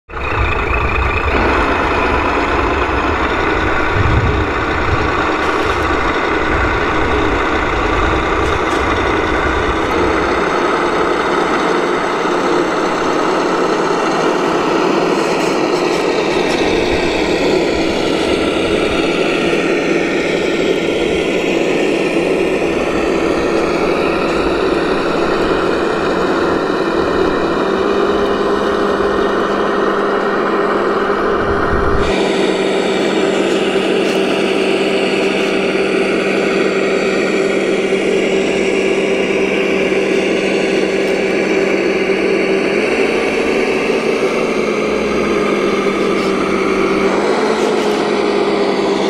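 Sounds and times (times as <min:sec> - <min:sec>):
low rumble: 0:00.1 - 0:14.2, 0:16.5 - 0:32.7
model truck mechanical drone: 0:00.1 - 0:49.0.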